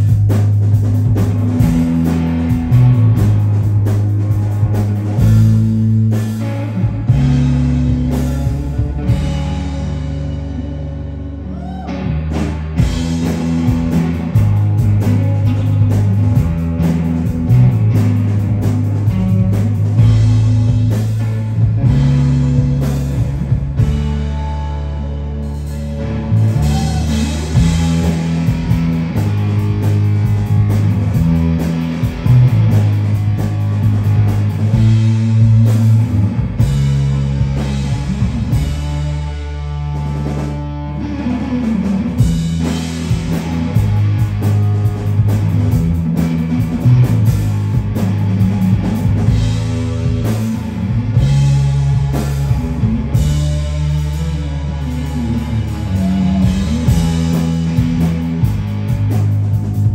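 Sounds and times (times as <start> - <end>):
drums and cymbals: 0.0 - 59.9
electric guitars: 0.0 - 59.9.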